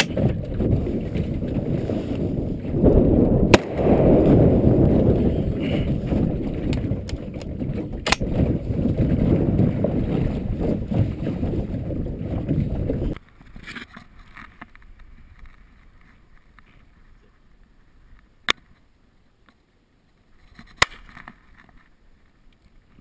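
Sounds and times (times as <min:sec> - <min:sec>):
wind rumbling on microphone: 0:00.0 - 0:13.6.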